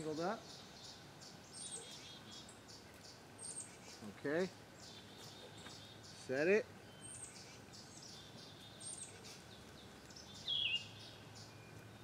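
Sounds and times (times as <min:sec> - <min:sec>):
high bird chirps: 0:04.8 - 0:12.0.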